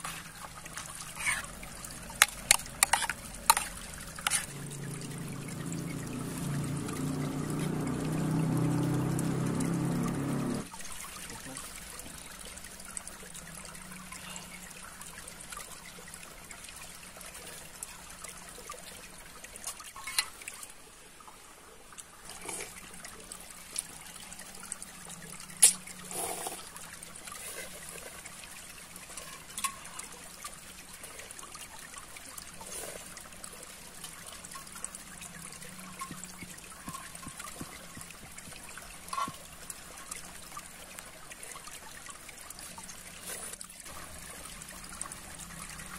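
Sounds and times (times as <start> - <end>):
water trickling: 0.0 - 45.9
noodles slurped: 1.0 - 4.9, 22.2 - 22.9, 25.6 - 26.7.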